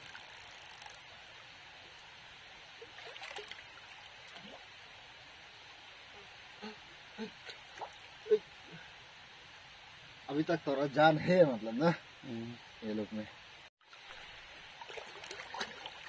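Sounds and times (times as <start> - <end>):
stream trickling over stones: 0.0 - 10.5, 13.8 - 16.0.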